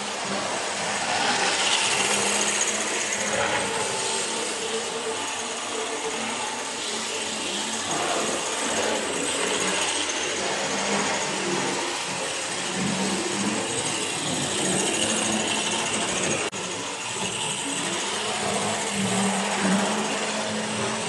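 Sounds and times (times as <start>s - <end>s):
model train motors whirring: 0.0s - 21.0s
wheels running on track: 0.0s - 21.0s.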